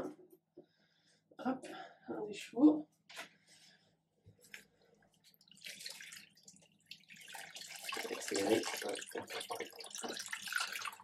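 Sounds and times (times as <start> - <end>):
water dripping and splashing: 4.4 - 11.0.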